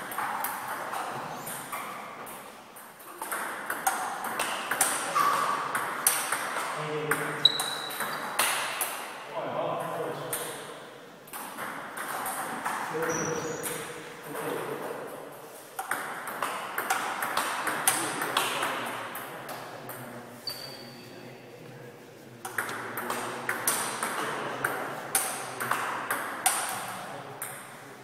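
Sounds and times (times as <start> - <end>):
table tennis balls clicking: 0.0 - 9.0, 11.3 - 12.9, 15.8 - 18.8, 22.5 - 27.8.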